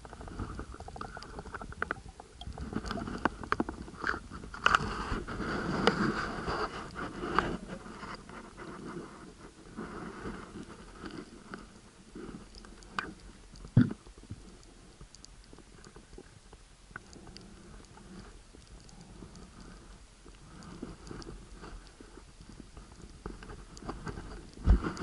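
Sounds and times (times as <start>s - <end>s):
underwater crackle: 0.0s - 25.0s
faint clicks: 12.4s - 25.0s.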